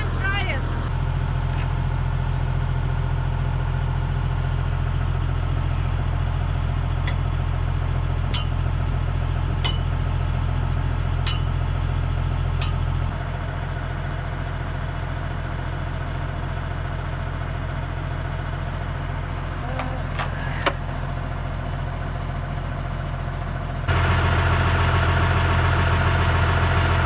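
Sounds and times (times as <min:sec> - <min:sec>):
diesel engine idling: 0:00.0 - 0:27.0
metallic clinks of tools: 0:08.3 - 0:08.6, 0:09.6 - 0:09.9, 0:11.3 - 0:11.6.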